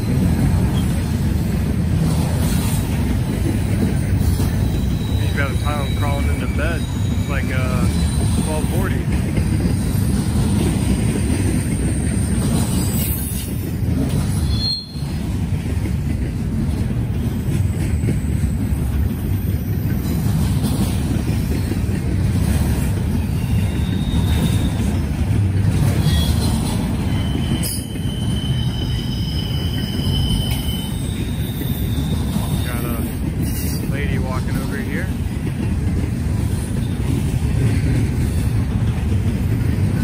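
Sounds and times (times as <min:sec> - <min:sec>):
train wheels rumbling on rail: 0:00.0 - 0:40.0
high wheel squeals: 0:03.5 - 0:08.9, 0:11.6 - 0:15.3, 0:23.0 - 0:25.1, 0:25.8 - 0:35.0.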